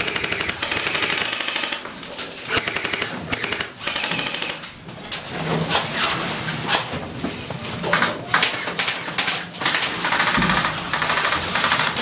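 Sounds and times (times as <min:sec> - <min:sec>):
airsoft guns firing bursts: 0:00.0 - 0:01.9, 0:02.5 - 0:04.6, 0:08.3 - 0:12.0.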